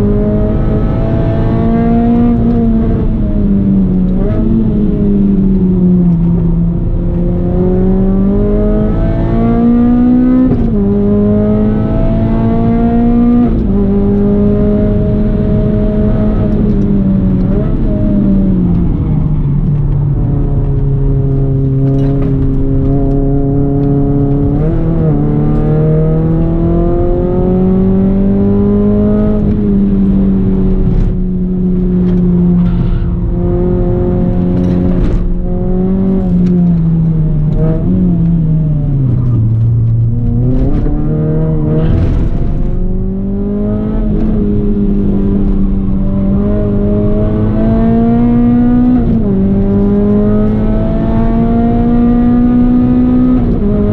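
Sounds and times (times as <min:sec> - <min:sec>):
car engine accelerating: 0:00.0 - 0:53.9.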